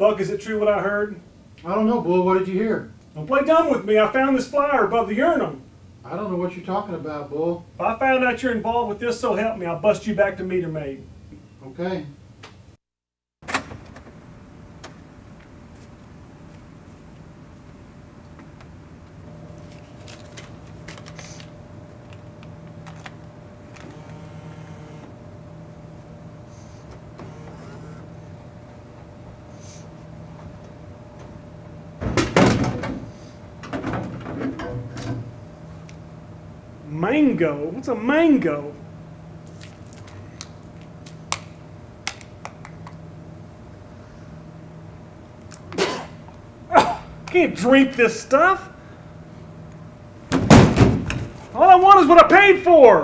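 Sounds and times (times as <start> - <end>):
steady low hum: 13.7 - 53.0.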